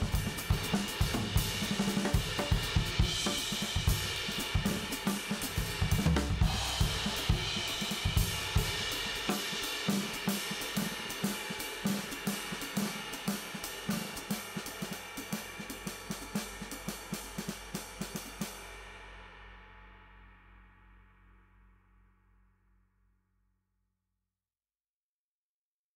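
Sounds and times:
drum-led music: 0:00.0 - 0:18.8.

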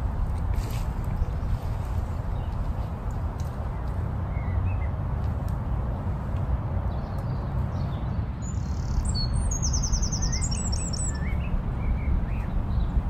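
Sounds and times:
small birds chirping and singing: 0:06.9 - 0:13.0.

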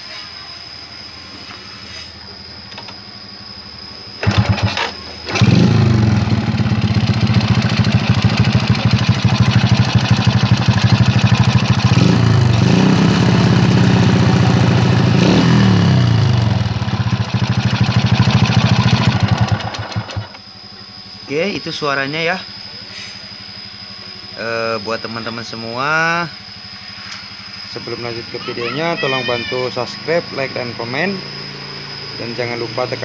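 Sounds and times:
motorcycle engine starting and idling: 0:02.5 - 0:21.2
ticking engine knock: 0:04.2 - 0:04.8, 0:05.9 - 0:12.6, 0:17.2 - 0:20.4.

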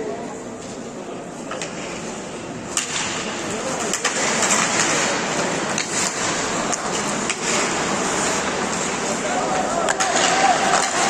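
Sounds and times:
hockey sticks and puck clacking: 0:01.4 - 0:11.0
skate blades scraping on ice: 0:03.0 - 0:11.0.

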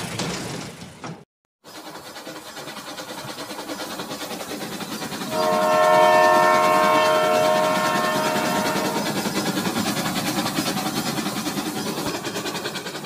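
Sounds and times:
toy train clattering on track: 0:01.7 - 0:13.0
electronic train whistle: 0:05.2 - 0:09.4.

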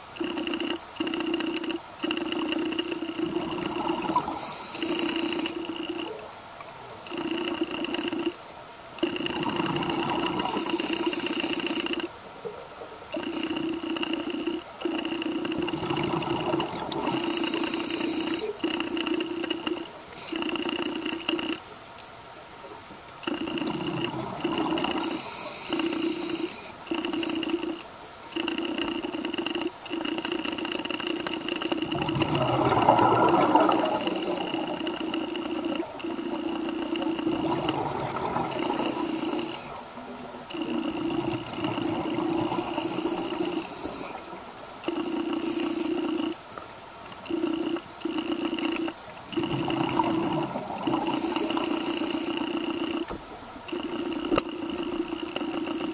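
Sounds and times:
scuba diver breathing underwater: 0:00.2 - 0:06.1, 0:09.2 - 0:12.1, 0:13.2 - 0:21.5, 0:23.2 - 0:27.8, 0:30.5 - 0:39.8, 0:40.5 - 0:44.2, 0:47.3 - 0:53.1
exhaled bubbles rushing: 0:03.2 - 0:04.4, 0:09.2 - 0:11.0, 0:15.5 - 0:17.7, 0:23.2 - 0:25.2, 0:31.6 - 0:39.5, 0:40.4 - 0:45.5, 0:48.3 - 0:53.1
steady humming tone: 0:23.1 - 0:55.9.

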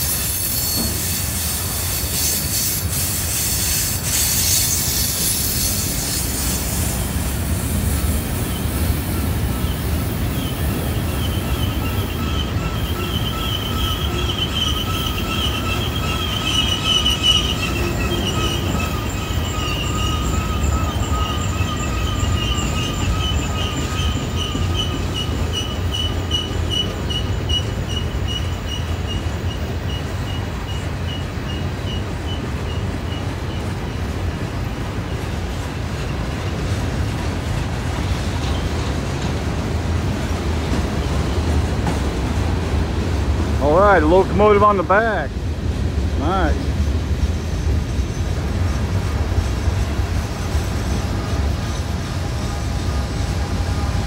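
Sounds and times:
wheel flange squeal: 0:00.0 - 0:07.3, 0:07.9 - 0:34.4, 0:46.5 - 0:54.0
train wheels rumbling on rail: 0:00.0 - 0:54.0.

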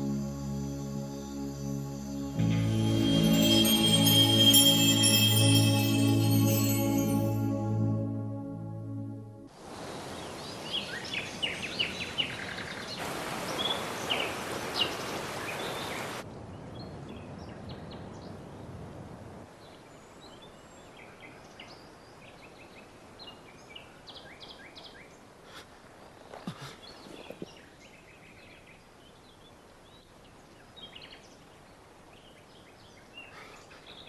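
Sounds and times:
small birds chirping: 0:19.6 - 0:34.0.

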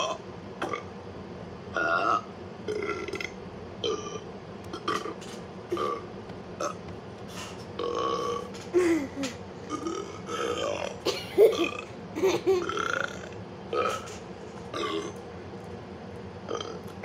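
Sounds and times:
short burps: 0:14.7 - 0:15.2.

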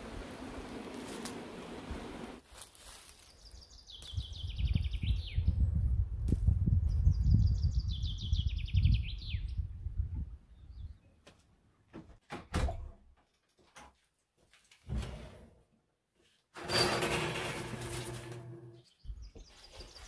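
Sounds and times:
songbird singing: 0:03.1 - 0:05.8, 0:06.9 - 0:09.8, 0:10.4 - 0:11.2, 0:18.8 - 0:20.0
wind rumbling on microphone: 0:04.0 - 0:11.0.

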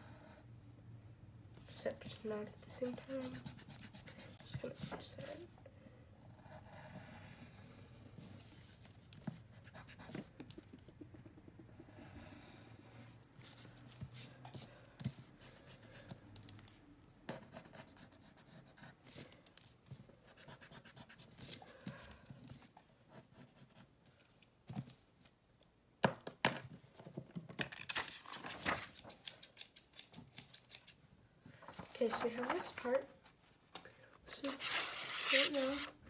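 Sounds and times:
pencil scratching on paper: 0:01.7 - 0:05.4, 0:17.3 - 0:19.3, 0:20.2 - 0:21.7, 0:23.1 - 0:23.9, 0:34.3 - 0:36.0
paper rustling: 0:27.6 - 0:31.0, 0:31.6 - 0:33.0.

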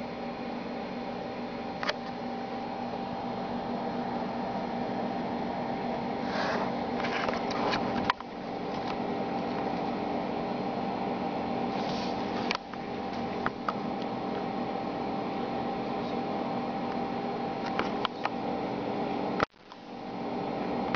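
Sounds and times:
computer fans whirring: 0:00.0 - 0:20.9.

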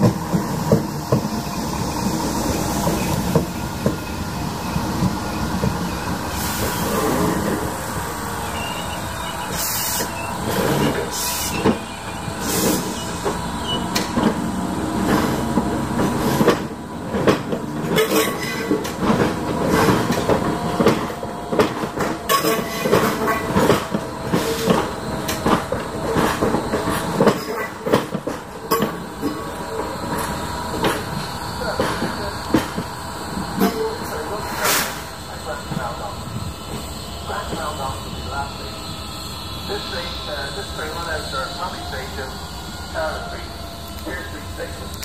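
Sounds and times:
train wheels clacking over rail joints: 0:09.5 - 0:35.0.

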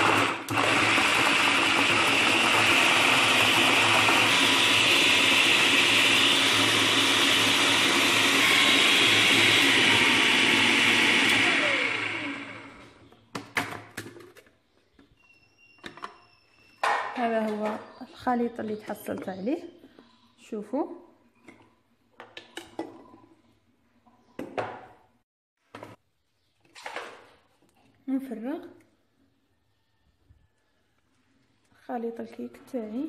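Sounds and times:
motor winding down: 0:00.0 - 0:12.8
food processor running: 0:00.0 - 0:13.0.

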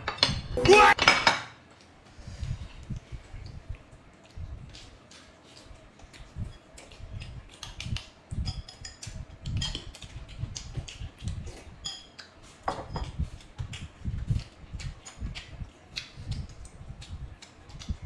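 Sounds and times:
utensils clicking against bowls: 0:11.8 - 0:12.3.

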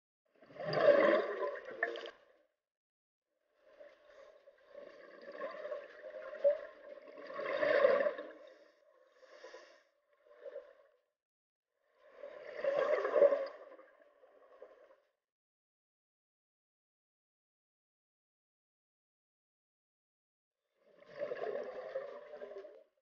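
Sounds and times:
exhaled bubbles gurgling: 0:00.4 - 0:02.3, 0:04.0 - 0:08.7, 0:12.2 - 0:13.8, 0:20.9 - 0:22.8
diver breathing through regulator: 0:09.1 - 0:09.9.

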